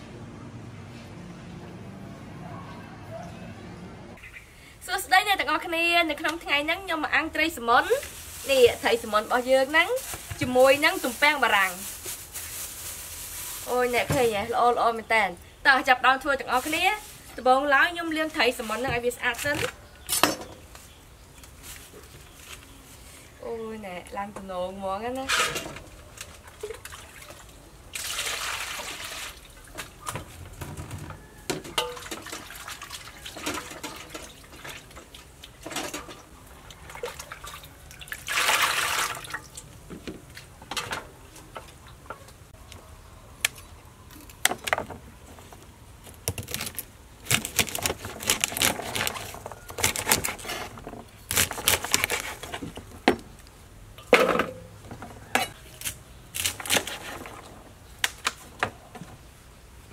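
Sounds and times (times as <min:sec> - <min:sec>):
plastic bags rustling: 0:07.6 - 0:14.5
dishes clinking and knocking: 0:30.7 - 0:32.4
water pouring into metal basin: 0:36.8 - 0:39.6.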